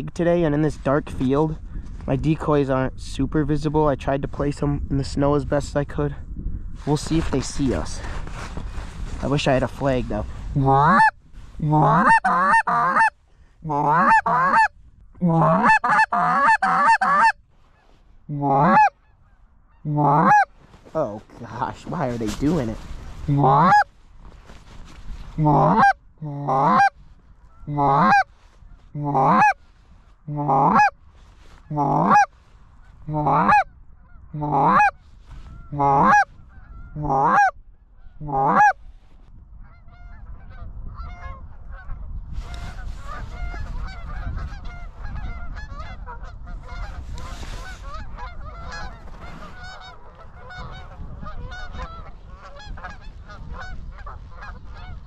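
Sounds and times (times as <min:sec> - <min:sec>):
goose call honks: 0:10.6 - 0:17.4, 0:18.3 - 0:21.7, 0:23.3 - 0:23.9, 0:25.4 - 0:28.3, 0:28.9 - 0:29.6, 0:30.2 - 0:31.0, 0:31.6 - 0:32.3, 0:33.0 - 0:38.8, 0:39.7 - 0:55.0
distant flock of geese honking: 0:10.7 - 0:14.8, 0:15.4 - 0:20.6, 0:23.3 - 0:23.9, 0:25.4 - 0:38.9, 0:39.6 - 0:55.0.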